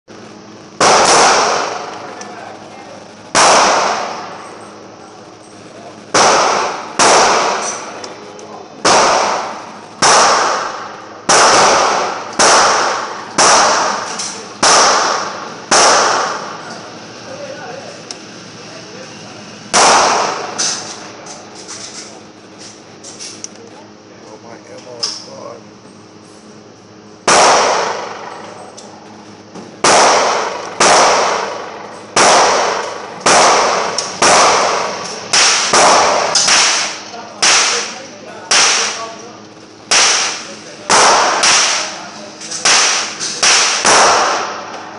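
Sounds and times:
gunshots echoing indoors: 0.8 - 2.1, 3.3 - 4.4, 6.1 - 8.0, 8.8 - 16.8, 19.7 - 21.1, 27.2 - 28.5, 29.8 - 39.2, 39.9 - 44.9.

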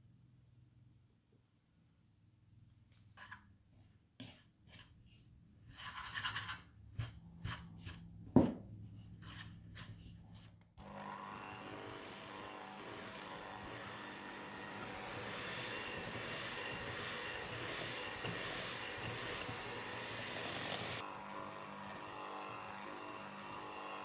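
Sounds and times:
whisk scraping in a bowl: 3.2 - 8.2, 8.8 - 10.6, 13.7 - 21.0
electric hand mixer running: 10.8 - 24.0
whisk knocking against bowl: 15.3 - 20.8.

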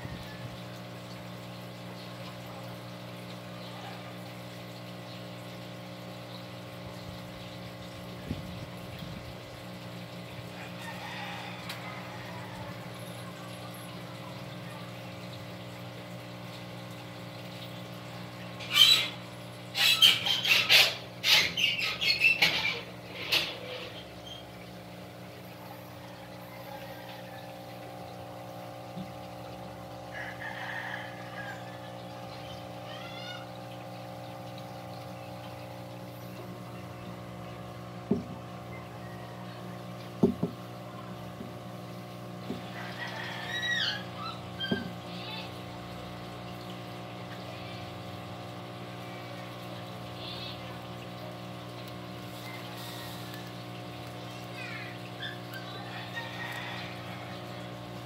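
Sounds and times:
hamsters squealing: 18.6 - 24.5, 31.3 - 33.6, 42.7 - 45.6, 50.2 - 50.8, 52.3 - 53.6, 54.3 - 57.5.

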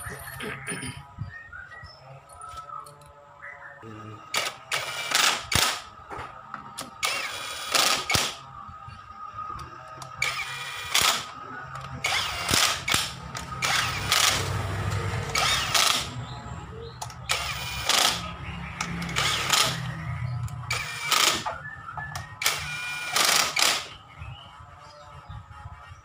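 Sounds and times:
cordless drill driving bolts: 4.3 - 6.0, 6.8 - 8.4, 9.6 - 16.2, 17.0 - 24.0.

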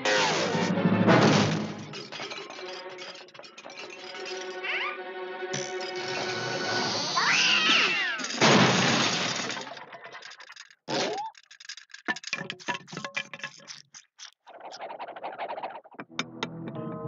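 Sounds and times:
loud crash: 0.0 - 2.1, 8.3 - 9.8
music: 0.0 - 7.3, 16.0 - 17.0
sharp clinks and clatters: 1.6 - 4.8, 5.5 - 6.5, 8.0 - 14.5
cartoon cat crying: 4.6 - 5.0, 7.1 - 8.4.

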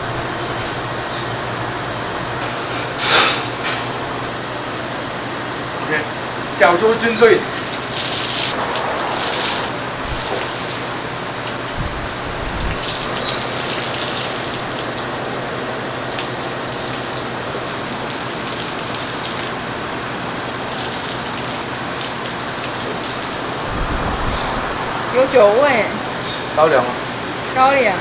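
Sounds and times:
steady hiss: 7.0 - 15.1, 20.7 - 27.8.

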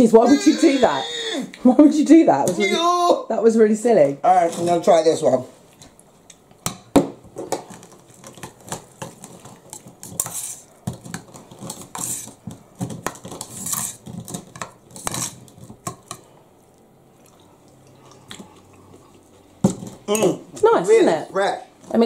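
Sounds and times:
utensil scraping in a bowl: 9.0 - 15.9.

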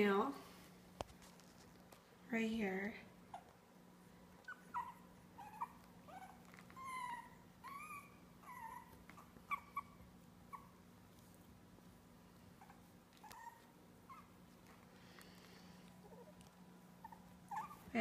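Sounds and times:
puppies whimpering and squeaking: 4.4 - 10.8, 12.6 - 14.4, 16.0 - 18.0.

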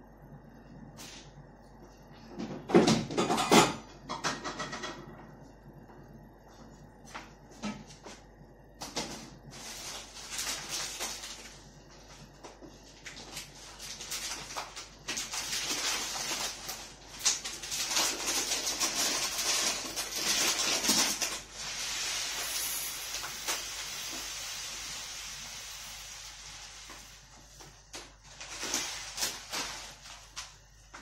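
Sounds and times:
broth boiling with bubbling hiss: 8.1 - 31.0.

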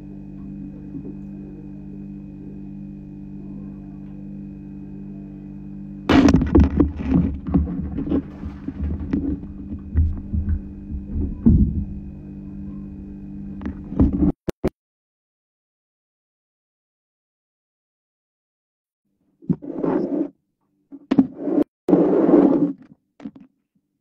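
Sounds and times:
low electrical hum: 0.0 - 14.4
phone microphone handling bumps: 6.1 - 12.2.

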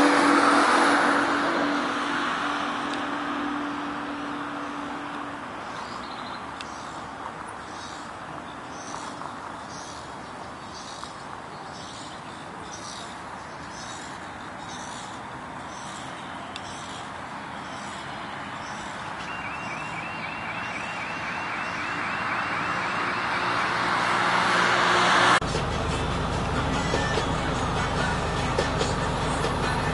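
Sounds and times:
vehicle passing: 0.0 - 6.6, 13.0 - 29.9
road traffic: 0.0 - 29.9.

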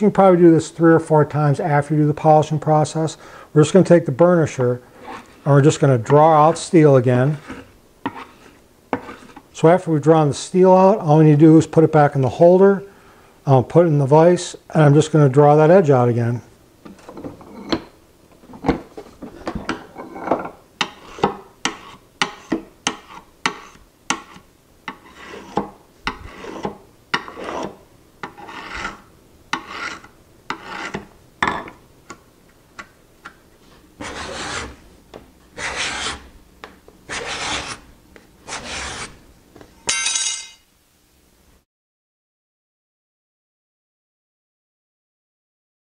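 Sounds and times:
burnisher stroking scraper edge: 20.8 - 31.1, 34.0 - 34.8, 35.6 - 36.3, 37.1 - 37.8, 38.5 - 39.2
card scraper shaving wood: 34.0 - 34.8, 35.6 - 36.3, 37.1 - 37.8, 38.5 - 39.2.

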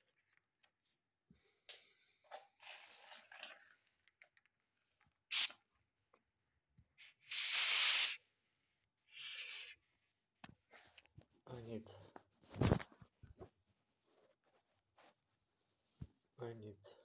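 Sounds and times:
air hissing from tyre valve: 7.0 - 8.2.

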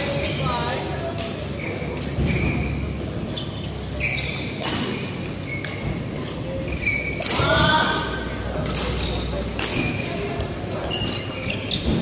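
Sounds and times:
shoes squeaking on court: 0.0 - 7.6, 8.7 - 12.0
rackets hitting shuttlecock: 4.3 - 12.0.

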